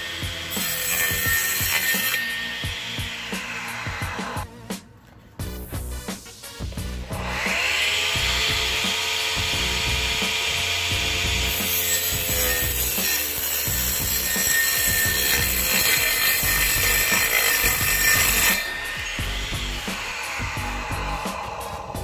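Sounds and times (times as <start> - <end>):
circular saw motor whining: 0.0 - 4.4, 7.1 - 22.0
saw cutting board rasping hiss: 7.2 - 22.0.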